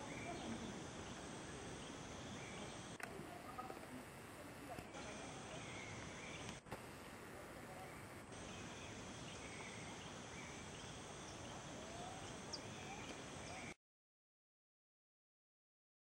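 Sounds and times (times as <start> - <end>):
steady background hiss: 0.0 - 13.8
bird chirps: 4.9 - 6.6, 7.7 - 13.8.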